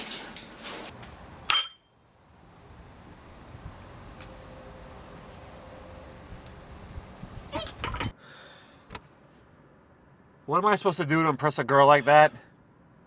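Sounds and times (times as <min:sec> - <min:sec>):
cricket chirping: 0:00.9 - 0:08.1.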